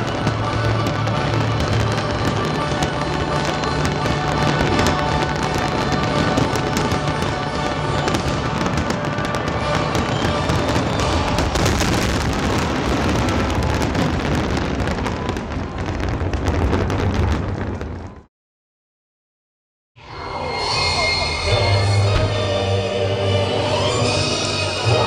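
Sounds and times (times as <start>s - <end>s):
music playing: 0.0s - 14.3s, 20.0s - 25.0s
fireworks crackling and popping: 0.0s - 18.3s.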